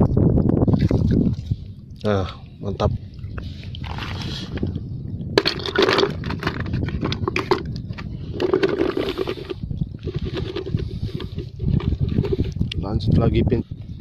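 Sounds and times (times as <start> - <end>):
coral rubble and shells clinking: 5.4 - 12.8.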